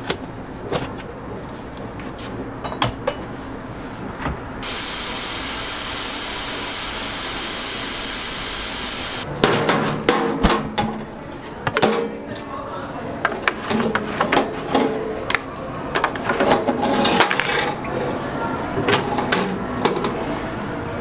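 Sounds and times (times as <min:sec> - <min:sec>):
steam hissing: 0:04.6 - 0:09.3.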